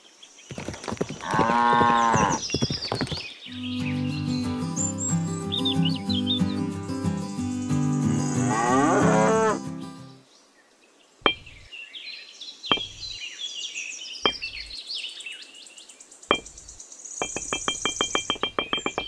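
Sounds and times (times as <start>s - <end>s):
birds chirping: 0.0s - 10.5s, 11.3s - 19.0s
music with sliding tones: 3.5s - 10.2s
clay bricks knocking down: 17.2s - 19.0s.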